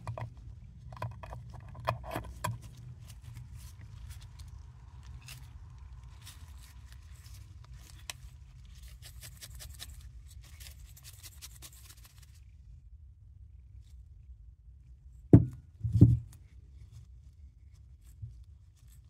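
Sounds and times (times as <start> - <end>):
screw lid twisting: 0.9 - 2.6.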